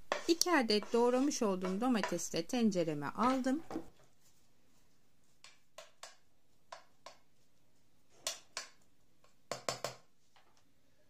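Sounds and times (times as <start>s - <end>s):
spatula tapping and scraping pot: 0.0s - 4.1s, 5.3s - 7.5s, 8.1s - 10.1s.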